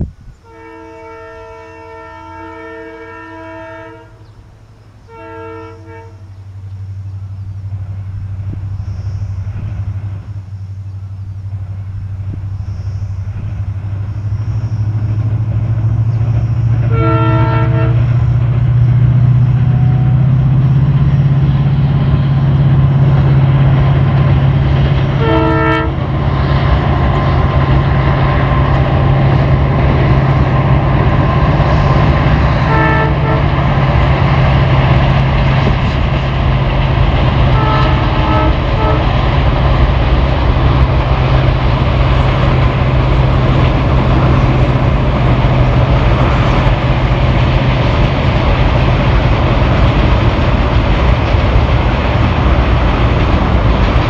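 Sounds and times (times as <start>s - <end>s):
diesel locomotive engine drone: 0.0s - 54.0s
locomotive horn blasts: 0.4s - 4.3s, 5.0s - 6.5s, 16.7s - 18.4s, 19.4s - 21.4s, 25.0s - 26.3s, 28.3s - 35.0s, 37.4s - 39.7s.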